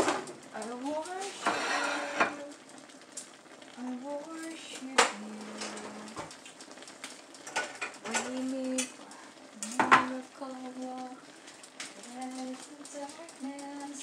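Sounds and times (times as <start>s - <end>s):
person humming: 4.2s - 6.2s
kitchenware clinking: 7.5s - 8.9s.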